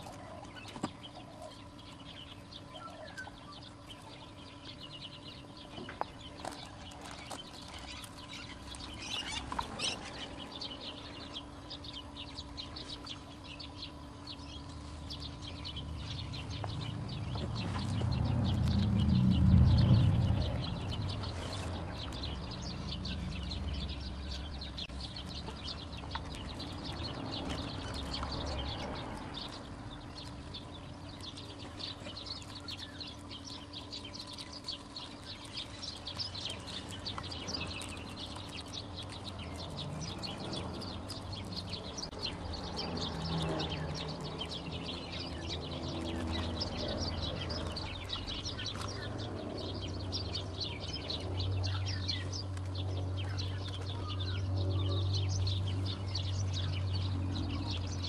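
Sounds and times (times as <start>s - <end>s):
small birds chirping: 0.0s - 58.0s
low rumble: 14.3s - 58.0s.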